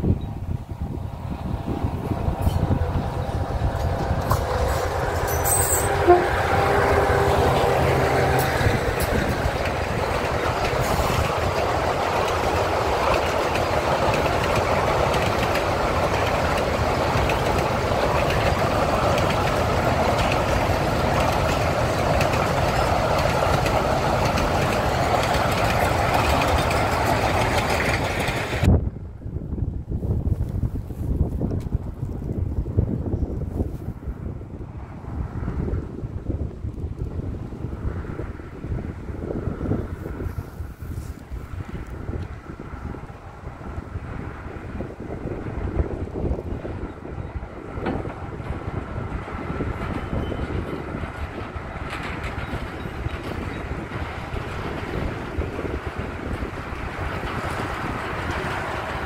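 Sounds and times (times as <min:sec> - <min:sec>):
train rattling: 0:00.0 - 0:28.8, 0:37.2 - 0:59.0
diesel locomotive engine: 0:00.0 - 0:59.0.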